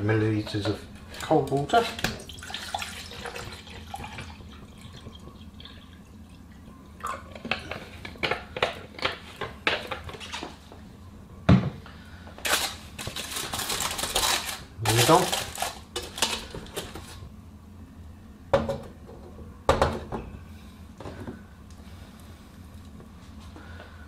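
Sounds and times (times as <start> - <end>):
water pouring into metal mug: 2.3 - 6.3
foil crinkling: 12.4 - 17.2.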